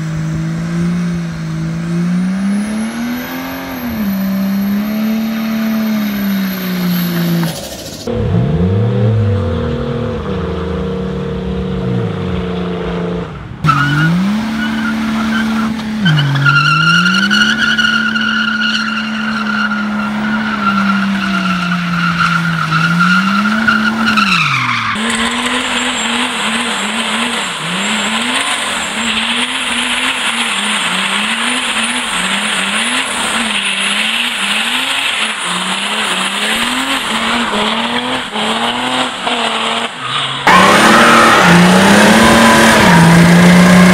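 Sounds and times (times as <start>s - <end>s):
car engines revving high: 0.0s - 43.9s
tyres squealing: 13.7s - 43.7s.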